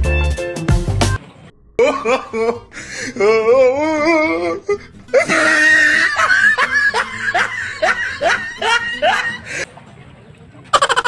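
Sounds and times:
background music: 0:00.0 - 0:01.2, 0:01.8 - 0:09.6
person laughing: 0:01.8 - 0:09.6, 0:10.7 - 0:11.0.

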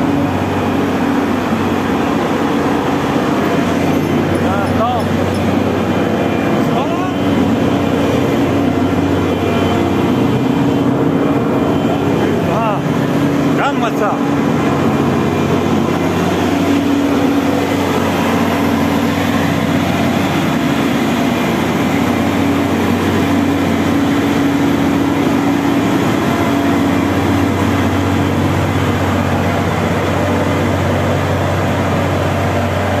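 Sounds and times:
combine harvester engine droning: 0:00.0 - 0:33.0.

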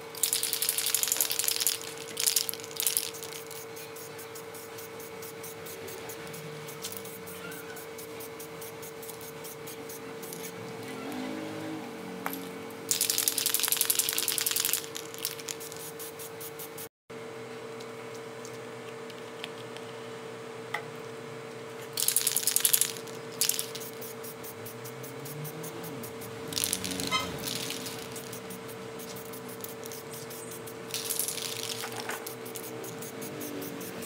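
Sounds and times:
spray can hissing: 0:00.0 - 0:10.6, 0:12.3 - 0:16.9, 0:22.0 - 0:34.0
steady low hum: 0:00.0 - 0:34.0
spray can rattling: 0:00.1 - 0:10.6, 0:12.3 - 0:16.9, 0:22.0 - 0:34.0.

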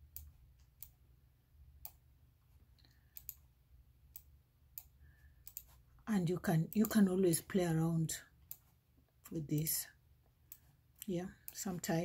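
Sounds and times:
low steady hum: 0:00.0 - 0:12.0
computer input clicks: 0:04.2 - 0:05.8, 0:06.6 - 0:07.2.

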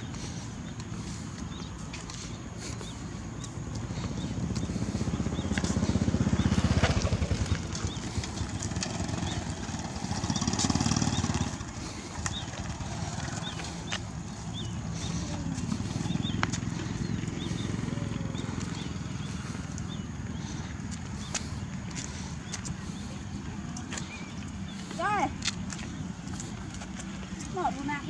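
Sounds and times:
sandal footsteps on concrete: 0:00.0 - 0:17.8, 0:18.4 - 0:28.0.

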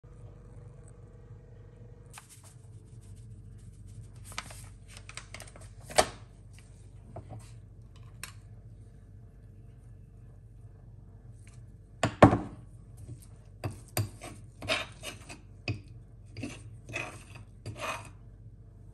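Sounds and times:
low hum: 0:00.0 - 0:05.1, 0:06.3 - 0:12.0.

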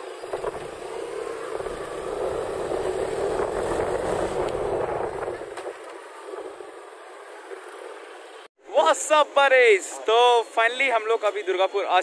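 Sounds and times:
motorcycle engine and road noise: 0:00.0 - 0:08.5
street background: 0:00.0 - 0:12.0
wind rushing over microphone: 0:01.5 - 0:06.6.

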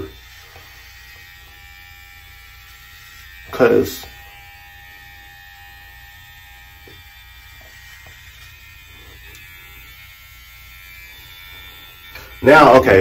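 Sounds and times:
electric hair trimmer buzzing: 0:00.0 - 0:13.0.

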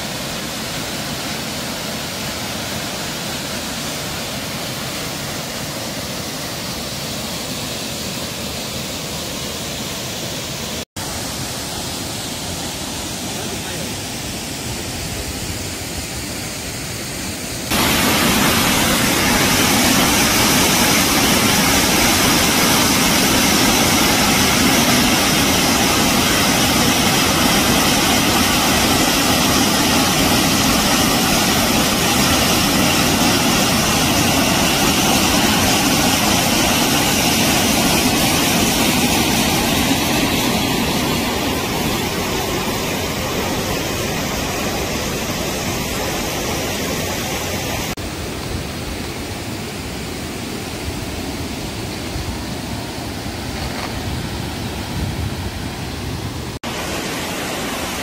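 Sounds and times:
waterfall pouring into pool: 0:17.7 - 0:48.0, 0:56.6 - 0:58.0.

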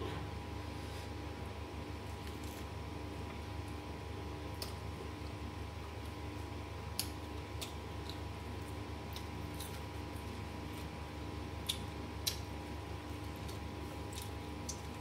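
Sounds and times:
low electrical hum: 0:00.0 - 0:15.0
chewing smacks and clicks: 0:06.9 - 0:10.9, 0:11.6 - 0:12.5, 0:13.2 - 0:15.0.

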